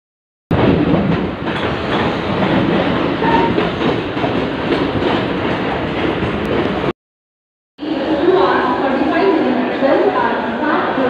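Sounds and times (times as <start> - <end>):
train wheels on track: 0.5 - 6.9.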